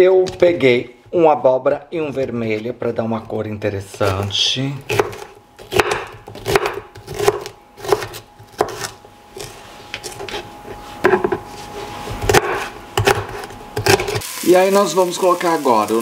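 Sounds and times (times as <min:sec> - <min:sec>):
knife cutting on cutting board: 0:04.9 - 0:14.2.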